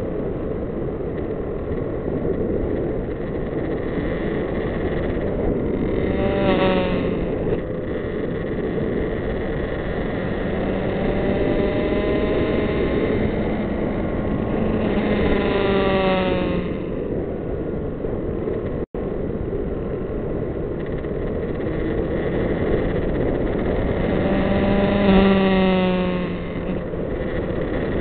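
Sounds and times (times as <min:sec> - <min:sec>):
wind rush on microphone: 0:00.0 - 0:28.0
motorcycle engine: 0:03.1 - 0:17.1, 0:20.8 - 0:28.0.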